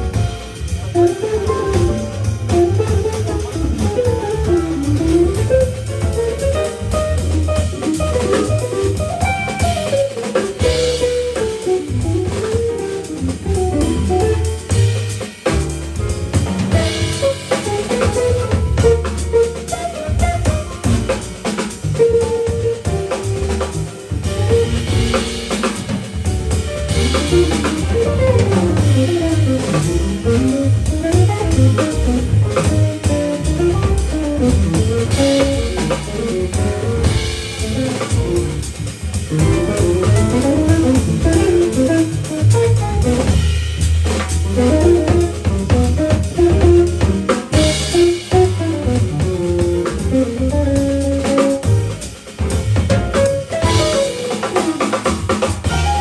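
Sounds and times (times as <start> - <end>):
drum kit with cymbals: 0.0 - 56.0
walking bass line: 0.0 - 56.0.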